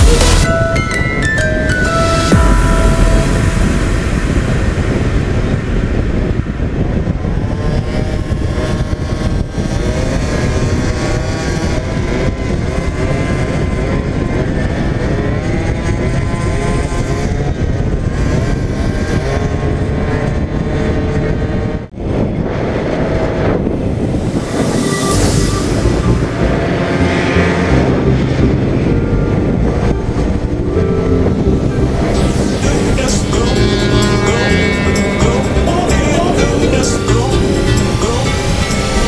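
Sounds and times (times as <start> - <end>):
wind rushing on microphone: 0.0 - 39.0
two-stroke scooter engine revving: 6.6 - 21.6, 31.5 - 39.0.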